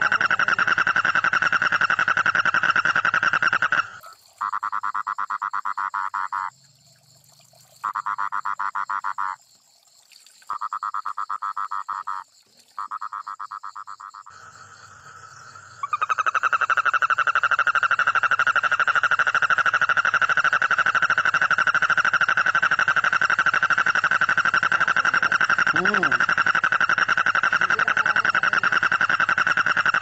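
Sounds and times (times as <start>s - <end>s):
toad trilling: 0.0s - 6.5s, 12.8s - 30.0s.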